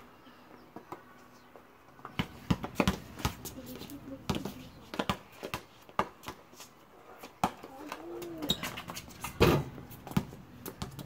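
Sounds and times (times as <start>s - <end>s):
basketball bouncing on pavement: 2.0s - 6.5s, 7.2s - 11.0s.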